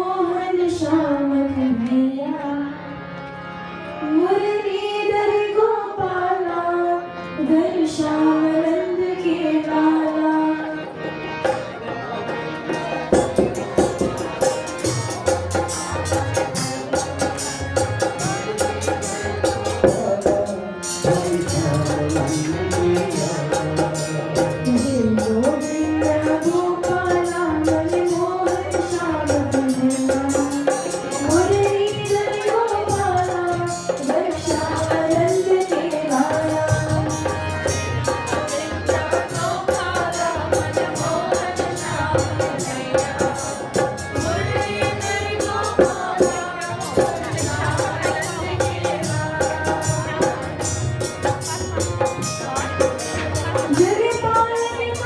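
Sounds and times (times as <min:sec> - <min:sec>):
woman singing: 0:00.0 - 0:03.0, 0:04.0 - 0:10.9, 0:24.6 - 0:55.0
harmonium: 0:00.0 - 0:55.0
hand drum: 0:11.4 - 0:55.0.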